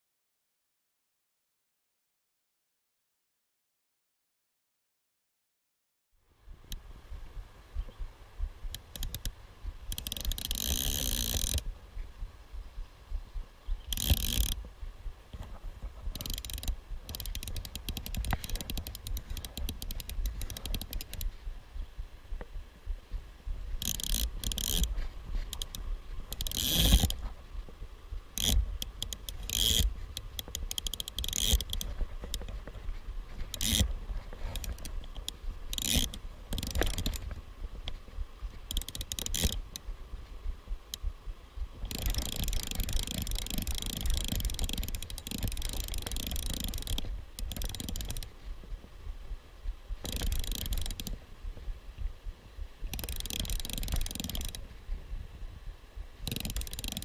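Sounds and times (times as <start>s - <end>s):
rasping bursts: 8.7s - 11.6s, 13.9s - 14.6s, 23.8s - 27.2s, 28.4s - 32.5s, 33.5s - 37.3s, 41.8s - 48.3s
metal pincers clicking on plastic: 56.3s - 57.0s.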